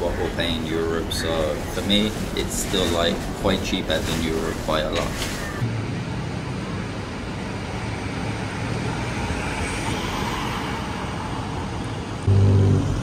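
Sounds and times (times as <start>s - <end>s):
passing cars road noise: 5.6s - 13.0s
low droning hum: 12.2s - 13.0s.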